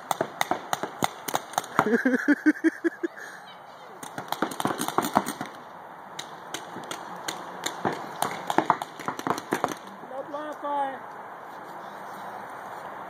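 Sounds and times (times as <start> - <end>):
paintball markers firing: 0.0 - 1.9, 4.0 - 5.6, 6.2 - 9.9.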